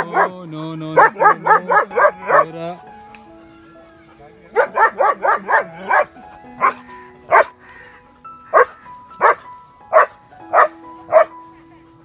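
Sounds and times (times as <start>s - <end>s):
dog barking: 0.0s - 0.4s, 1.0s - 2.5s, 4.5s - 7.6s, 8.5s - 11.4s
background music: 0.0s - 12.0s.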